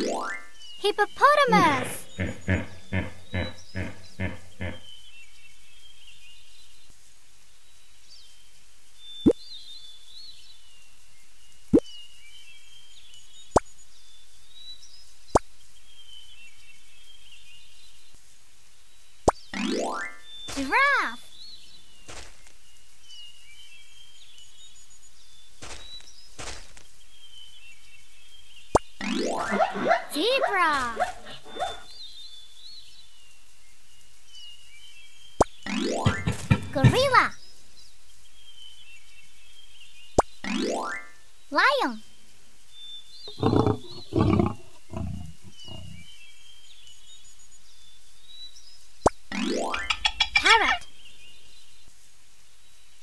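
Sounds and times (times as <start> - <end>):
small birds chirping: 0.0 - 53.0
lion roaring: 1.6 - 4.8, 43.3 - 46.0.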